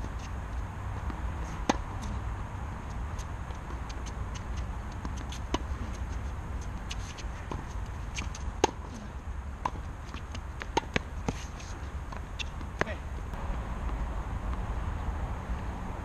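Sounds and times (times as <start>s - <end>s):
steady low rumble: 0.0s - 16.0s
tennis ball struck by rackets: 1.0s - 1.9s, 6.9s - 14.6s
tennis ball bouncing on hard court: 1.0s - 2.2s, 3.2s - 14.7s.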